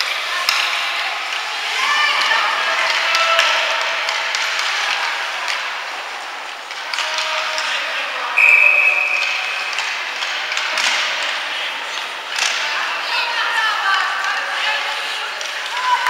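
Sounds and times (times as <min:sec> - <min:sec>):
clatter of sticks and skates: 0:00.0 - 0:16.0
referee's whistle blast: 0:08.4 - 0:09.6.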